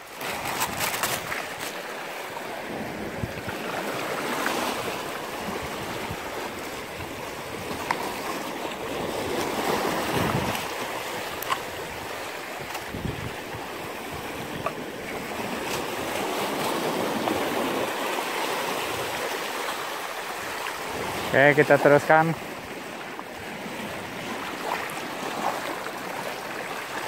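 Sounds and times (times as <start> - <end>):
waves splashing over rocks: 0.0 - 27.0
wind buffeting microphone: 2.7 - 3.9, 4.8 - 18.0.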